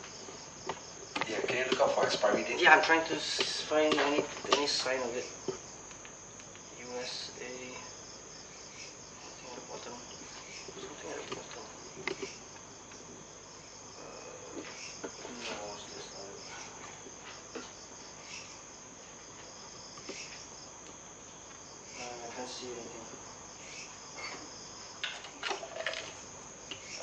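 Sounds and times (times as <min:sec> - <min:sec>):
crickets chirping: 0:00.0 - 0:27.0
objects being handled: 0:25.0 - 0:26.9.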